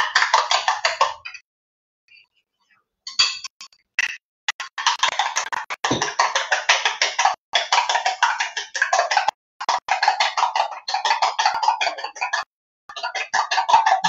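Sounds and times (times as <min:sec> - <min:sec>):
utensil beating mixture in bowl: 0:04.5 - 0:14.0.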